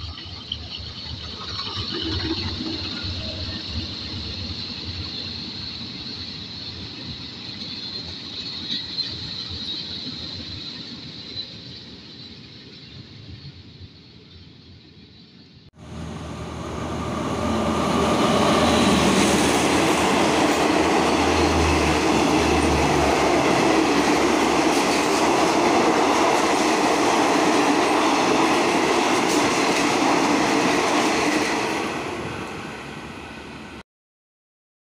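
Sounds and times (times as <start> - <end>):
train passing at speed: 0.0 - 33.8.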